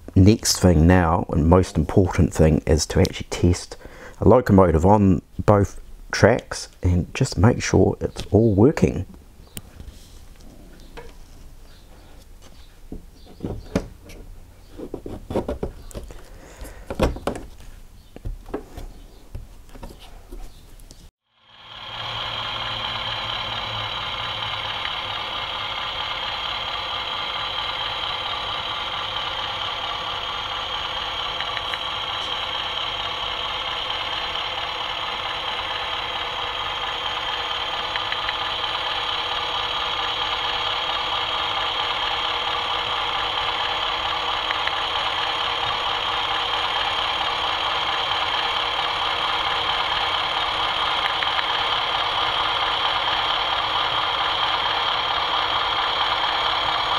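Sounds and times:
model train diesel engine sound: 0.0s - 9.6s, 21.3s - 56.9s.

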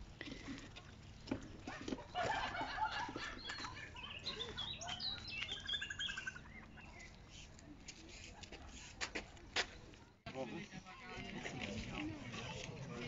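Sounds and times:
songbirds chirping and whistling: 1.0s - 7.6s
bird trill: 3.0s - 7.2s.

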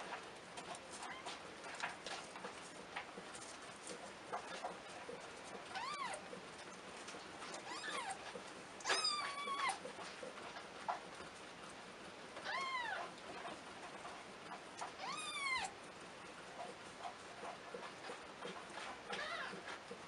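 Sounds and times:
kittens mewing: 8.8s - 9.8s, 15.0s - 15.7s.

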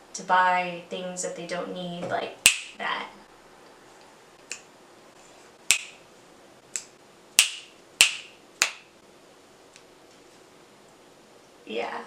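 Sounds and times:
fingers snapping: 4.4s - 4.7s, 5.7s - 6.0s, 6.7s - 8.9s.

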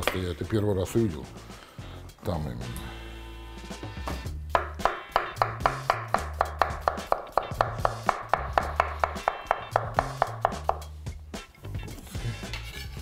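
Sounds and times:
knife chopping on wooden board: 4.5s - 10.9s.

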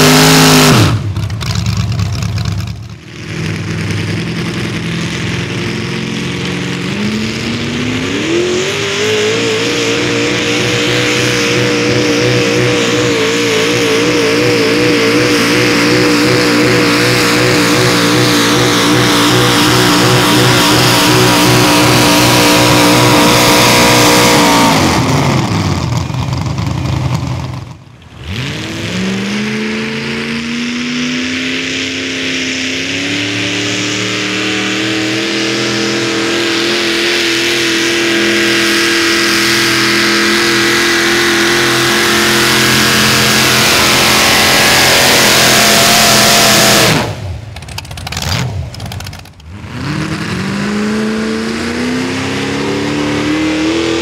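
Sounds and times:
tractor engine revving: 0.0s - 54.0s.

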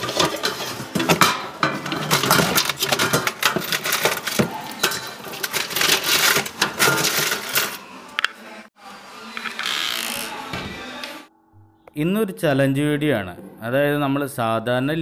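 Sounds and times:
trinkets rattling in metal tin: 0.0s - 7.8s.

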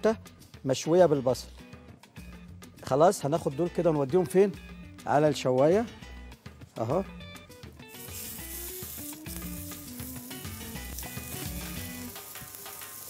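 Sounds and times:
soft background music: 0.0s - 13.0s
meat patties sizzling on a grill: 7.8s - 13.0s.

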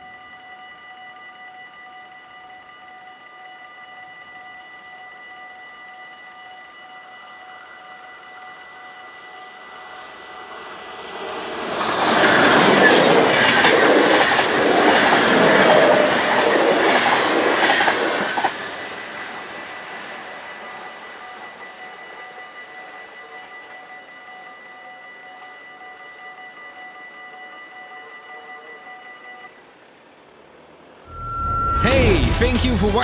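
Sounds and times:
train passing with wheel clatter: 5.9s - 31.8s
level crossing bell ringing: 19.0s - 29.6s.

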